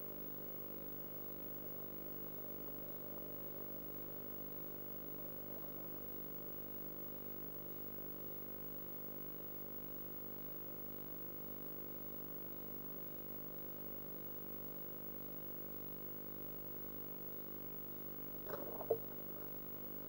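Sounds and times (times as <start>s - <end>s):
electrical hum: 2.2s - 7.2s, 16.5s - 20.0s.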